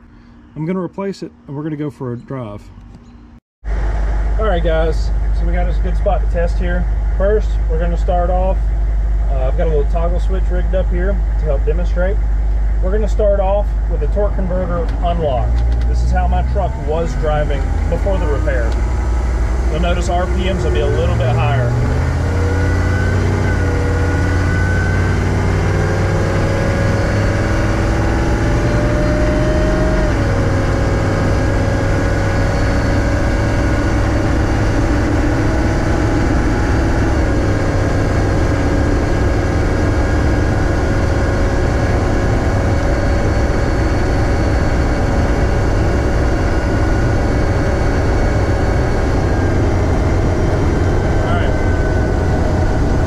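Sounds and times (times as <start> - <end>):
diesel engine droning: 0.0 - 53.0
faint high whine: 36.8 - 53.0.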